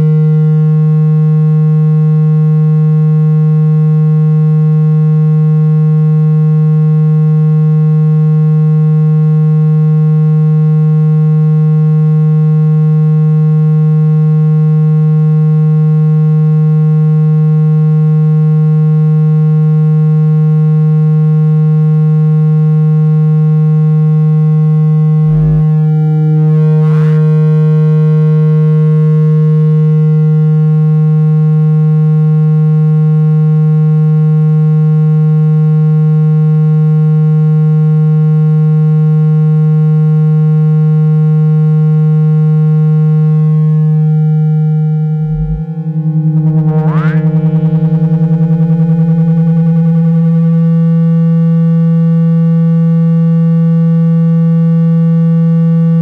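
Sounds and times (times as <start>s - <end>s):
low buzzy synthesized tone: 0.0s - 3.2s, 23.5s - 30.2s, 42.4s - 56.0s.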